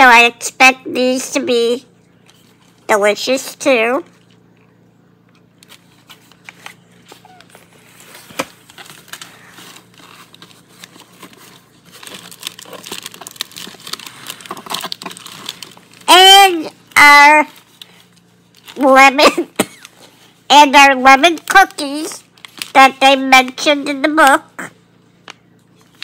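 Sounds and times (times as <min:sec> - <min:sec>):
plastic wrappers crinkling: 0:05.4 - 0:16.6, 0:17.4 - 0:20.4, 0:21.1 - 0:24.0, 0:25.2 - 0:26.0.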